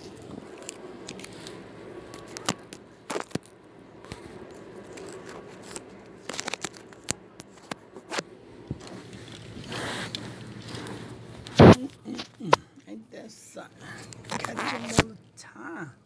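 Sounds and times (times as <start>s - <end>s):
sharp clicks and crackles: 0.0s - 12.6s
faint rustling: 0.0s - 13.0s
low steady room hum: 0.0s - 16.0s.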